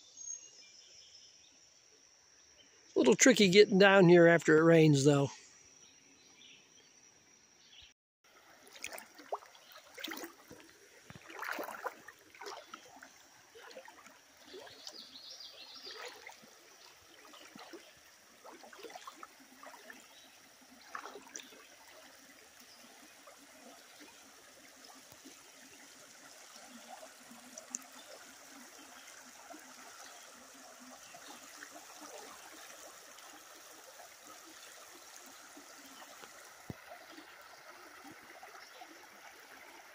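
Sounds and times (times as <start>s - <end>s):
river water trickling over rocks: 8.3s - 39.9s.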